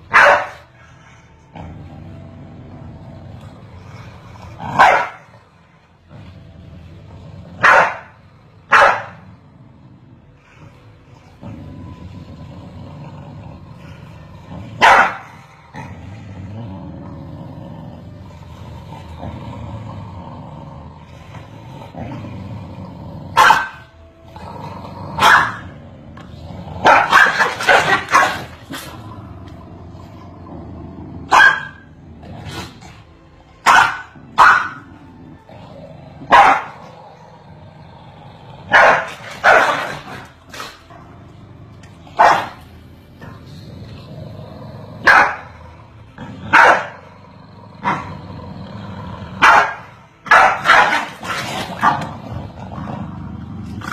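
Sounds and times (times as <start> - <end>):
dogs barking: 0.0 - 1.0, 4.7 - 5.4, 7.6 - 9.3, 14.8 - 15.8, 23.3 - 23.9, 25.2 - 25.8, 26.8 - 28.9, 31.2 - 31.9, 33.6 - 34.9, 36.2 - 37.0, 38.7 - 40.9, 42.1 - 42.8, 45.0 - 45.7, 46.4 - 47.1, 49.4 - 52.2.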